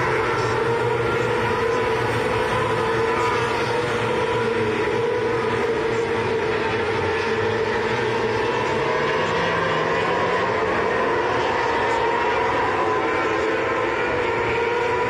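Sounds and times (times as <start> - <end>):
race car engine drone: 0.0 - 15.0.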